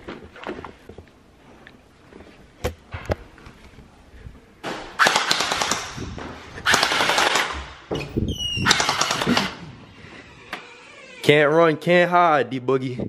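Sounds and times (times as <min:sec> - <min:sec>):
gel blaster rapid clicking fire: 0:05.0 - 0:06.0, 0:06.6 - 0:07.6, 0:08.6 - 0:09.6.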